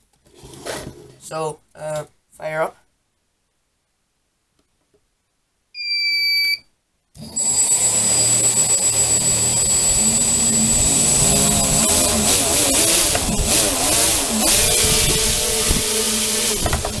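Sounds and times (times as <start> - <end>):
high electronic beep: 5.8 - 6.7, 7.4 - 12.1
motors and propellers whining: 7.2 - 17.0.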